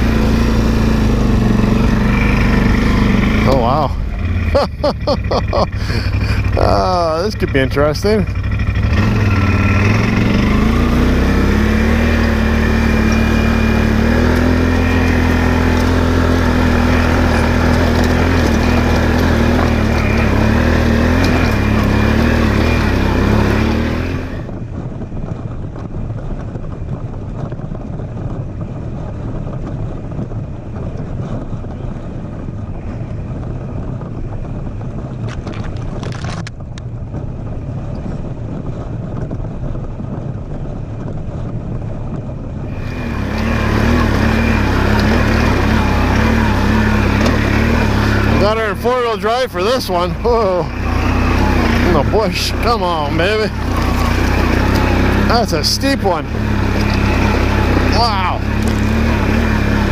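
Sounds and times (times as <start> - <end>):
atv engine under load: 0.0 - 59.9.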